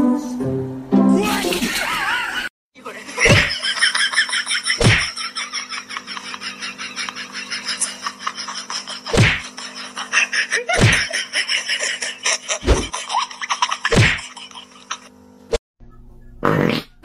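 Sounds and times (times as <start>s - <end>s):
loud thumps: 4.8s - 5.1s, 9.1s - 9.5s, 10.8s - 11.1s.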